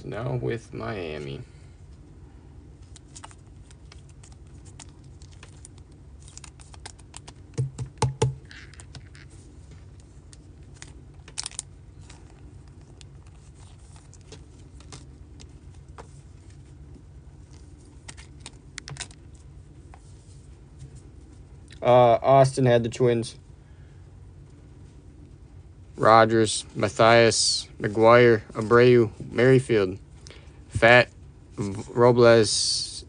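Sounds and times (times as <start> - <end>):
low steady hum: 0.0 - 33.0
plastic card sleeves rustling: 2.8 - 21.5
knocks: 7.6 - 8.4.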